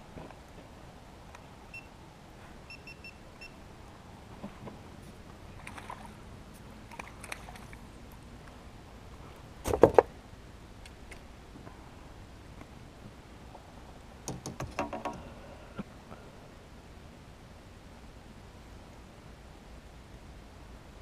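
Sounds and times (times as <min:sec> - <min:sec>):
electronic camera beeps: 0:02.7 - 0:03.6
fish splashing at surface: 0:05.6 - 0:06.2, 0:06.8 - 0:07.8.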